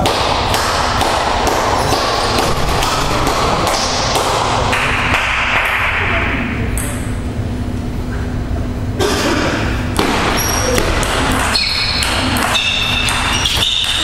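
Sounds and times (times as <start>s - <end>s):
table tennis ball bouncing: 0.0s - 6.1s, 6.7s - 7.1s, 10.0s - 14.0s
hall background noise: 0.0s - 14.0s.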